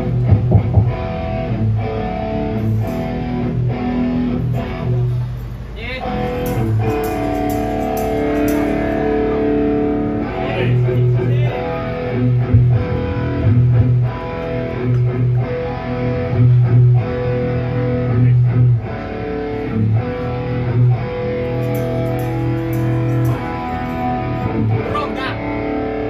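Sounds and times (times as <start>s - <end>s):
bass line: 0.0s - 5.4s, 6.0s - 26.0s
electric guitar: 0.0s - 26.0s
rhythmic drum hits: 0.2s - 1.5s, 6.2s - 10.2s, 11.0s - 14.2s, 21.2s - 24.9s.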